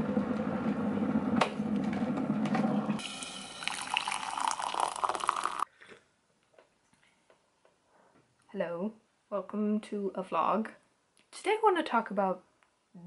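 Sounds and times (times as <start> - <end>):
electric kettle rumbling: 0.0 - 5.6
hot water pouring into mug: 3.0 - 5.7.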